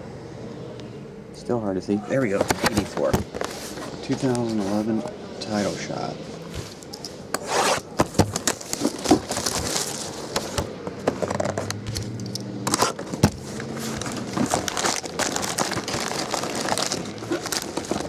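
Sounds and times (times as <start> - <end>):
foil packs rustling: 7.4 - 10.6, 12.7 - 18.0
plastic shrink wrap crinkling: 8.4 - 10.4, 12.8 - 18.0.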